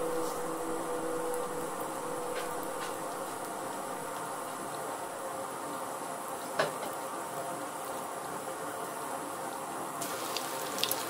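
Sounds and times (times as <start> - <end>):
oil sizzling in a pan: 10.0 - 11.0.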